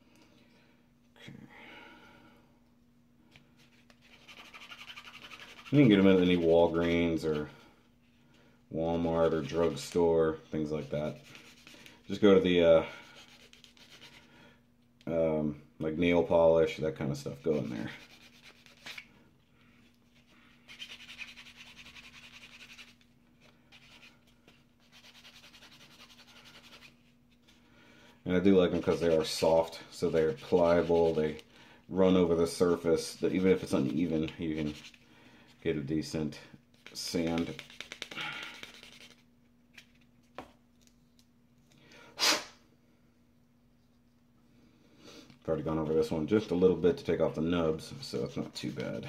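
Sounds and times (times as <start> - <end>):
plastic rubbing on foam pad: 3.6 - 7.0
person sneezing: 42.1 - 42.6.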